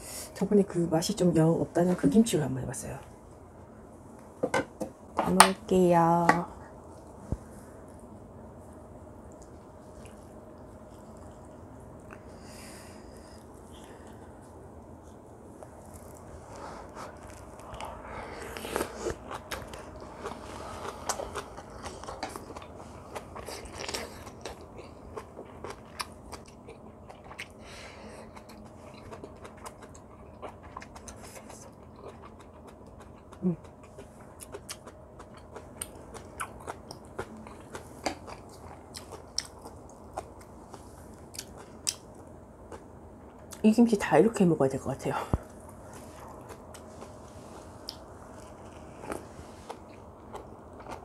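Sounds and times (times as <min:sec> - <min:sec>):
person chewing and crunching: 0:16.9 - 0:43.6, 0:45.4 - 0:51.0.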